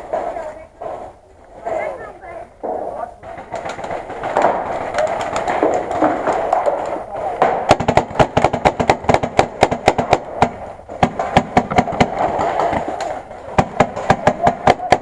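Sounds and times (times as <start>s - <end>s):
paintball markers firing: 3.2s - 15.0s.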